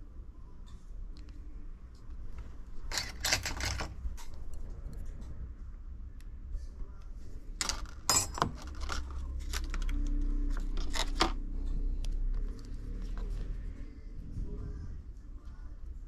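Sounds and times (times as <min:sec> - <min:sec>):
steady low hum: 0:00.0 - 0:16.0
scrapes and clicks of handling: 0:00.6 - 0:05.4, 0:07.6 - 0:13.6.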